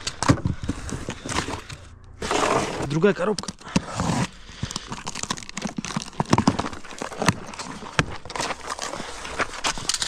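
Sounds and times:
packaging rustling and crinkling: 0.0 - 10.0.

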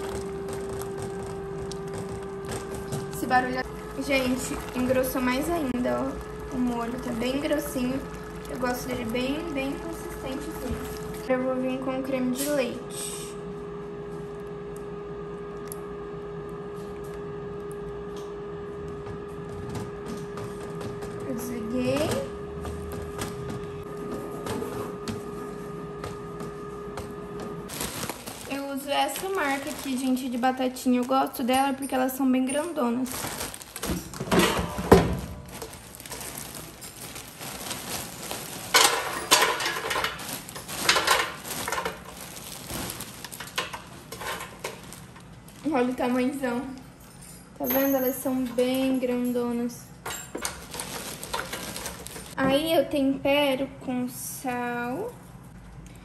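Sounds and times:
fries tumbling into basket: 0.0 - 11.2, 27.7 - 31.4, 33.0 - 46.0, 50.3 - 52.4
plastic bag crinkling: 0.0 - 11.3, 27.6 - 46.8, 50.3 - 52.4
steady hum: 0.0 - 47.6.

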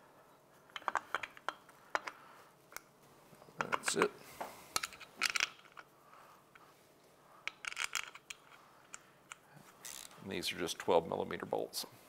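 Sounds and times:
metal bolts clinking and scraping: 0.7 - 2.2, 3.6 - 4.1, 4.8 - 5.9, 7.4 - 10.2.

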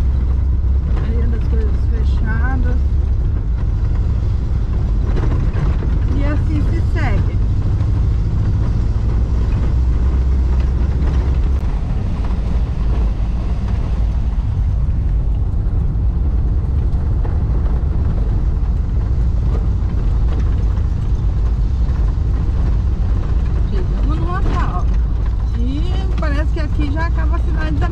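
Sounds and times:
van rumbling over stone paving: 0.0 - 27.9.

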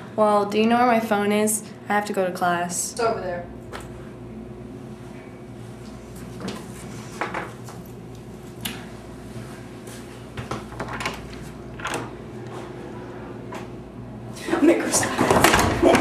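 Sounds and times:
steady low hum: 0.0 - 16.0
objects clattering and knocking: 14.9 - 16.0.

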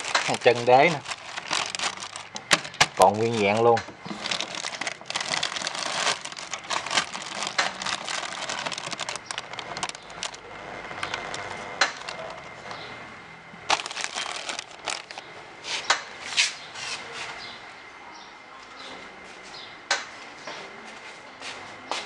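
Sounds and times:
plastic sheet crinkling: 0.0 - 12.5, 13.7 - 15.2.

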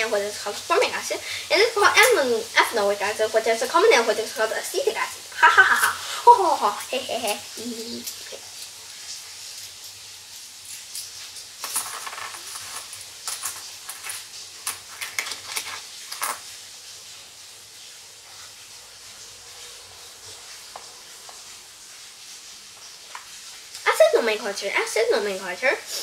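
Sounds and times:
metal coins clinking: 10.7 - 16.4.

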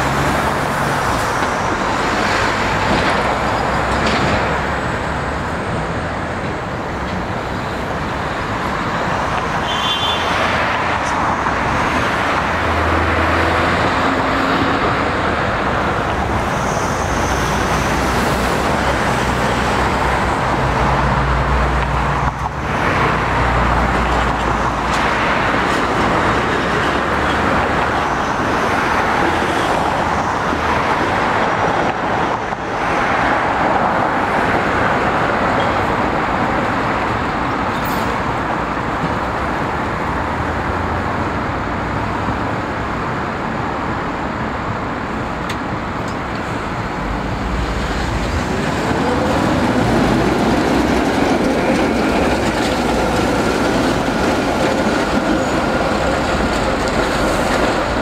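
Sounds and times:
street traffic rumble: 0.0 - 58.0
high-pitched squeal: 16.3 - 18.2.

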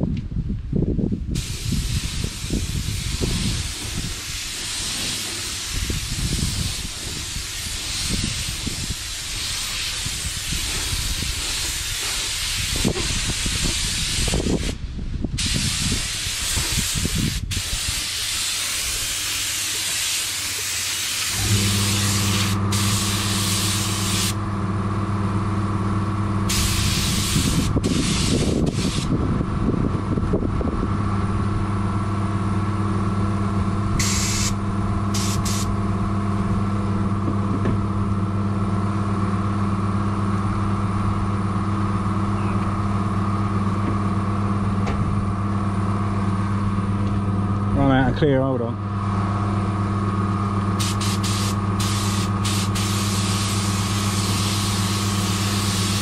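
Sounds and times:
air compressor humming: 1.4 - 14.8, 15.4 - 48.0, 48.8 - 56.0
spray gun hissing: 1.4 - 14.8, 15.4 - 24.4, 26.5 - 29.1, 34.0 - 35.7, 50.8 - 56.0.

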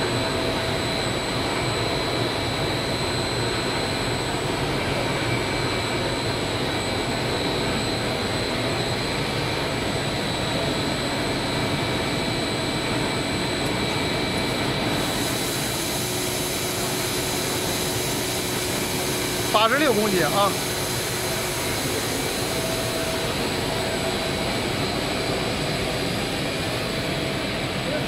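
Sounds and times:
extrusion machine running: 0.0 - 28.0
high steady whine: 0.0 - 28.0.

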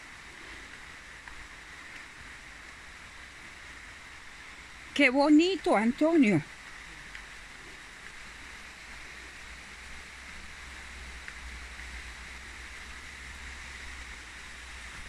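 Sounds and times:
running water rushing: 0.0 - 15.0.

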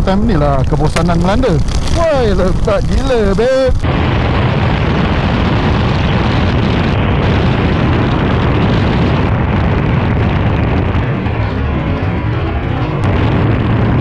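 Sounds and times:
wind rushing: 0.1 - 14.0
heavy rain on helmet: 1.0 - 3.9
motorcycle engine: 5.0 - 14.0.

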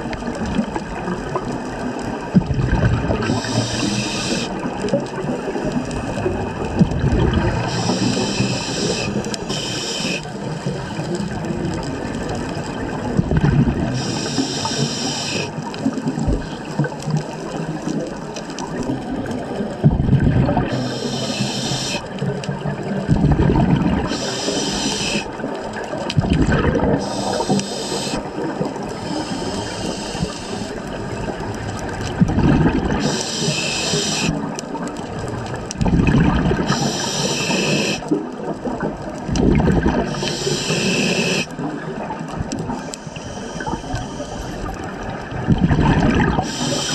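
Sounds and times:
gurgling exhaled bubbles: 0.0 - 46.9
regulator hissing inhalation: 3.2 - 4.6, 7.6 - 10.4, 13.9 - 15.6, 20.7 - 22.1, 24.0 - 25.4, 27.0 - 30.8, 33.0 - 34.4, 36.6 - 38.1, 40.1 - 41.5, 42.8 - 44.6, 46.4 - 46.9.

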